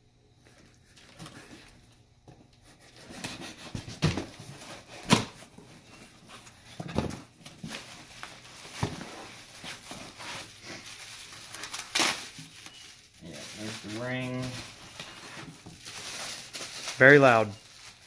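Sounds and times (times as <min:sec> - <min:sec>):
knife scraping through tape: 0:02.6 - 0:03.9
cardboard flaps rustling: 0:02.8 - 0:17.2.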